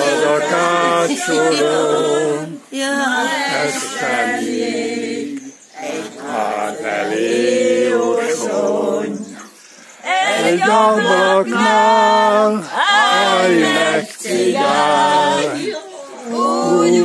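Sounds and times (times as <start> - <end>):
group singing unaccompanied: 0.0 - 17.0
short breaths: 9.4 - 10.1.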